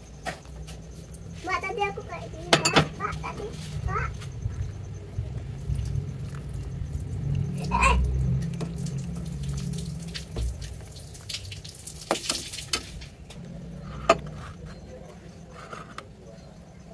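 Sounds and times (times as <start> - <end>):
glass bowl clinks: 2.5 - 3.0
splashes: 6.9 - 13.3
liquid sloshing and pouring: 8.2 - 13.3.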